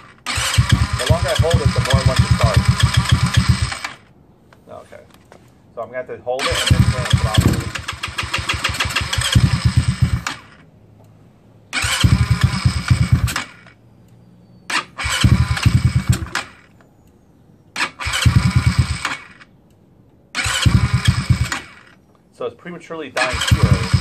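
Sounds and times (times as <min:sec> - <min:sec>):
scooter engine cranking and dying: 0:00.0 - 0:04.1, 0:06.4 - 0:10.7, 0:11.6 - 0:13.8, 0:14.7 - 0:16.8, 0:17.7 - 0:19.6, 0:20.3 - 0:22.0, 0:23.2 - 0:24.0.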